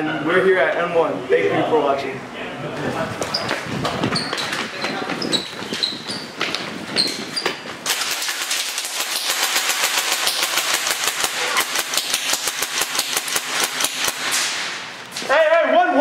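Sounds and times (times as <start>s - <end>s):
airsoft gun firing rapidly: 7.8s - 14.9s.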